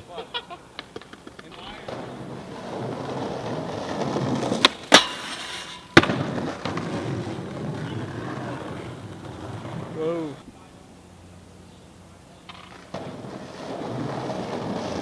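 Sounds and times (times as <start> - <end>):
skateboard pop: 0.7 - 9.9
skateboard wheels rolling on stone: 0.7 - 10.4, 12.4 - 15.0
skateboard hard landing: 0.8 - 10.0, 12.5 - 15.0.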